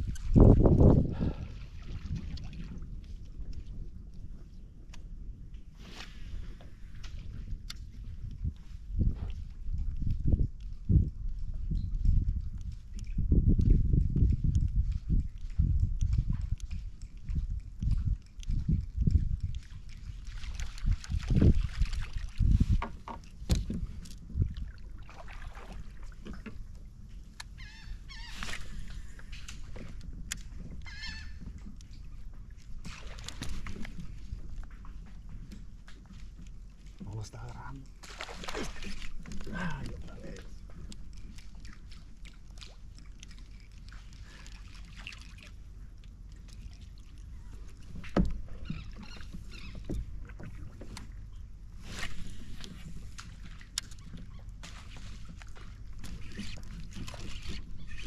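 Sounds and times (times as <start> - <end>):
wind rumble on microphone: 0.0 - 58.0
bird warbling call: 27.6 - 28.6, 30.8 - 31.4, 48.6 - 49.9.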